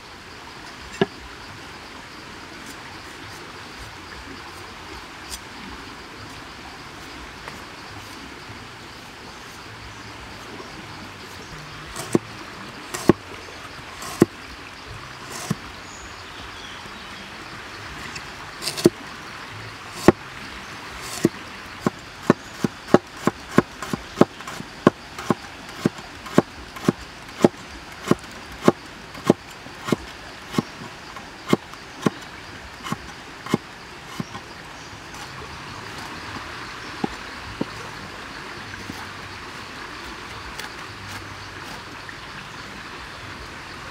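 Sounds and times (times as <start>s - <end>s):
steady background hiss: 0.0s - 43.9s
cleaver chopping on wooden board: 12.0s - 12.2s, 13.0s - 13.2s, 14.0s - 14.3s, 15.3s - 15.6s, 18.6s - 19.0s, 20.0s - 20.2s, 21.0s - 32.2s, 32.8s - 34.4s.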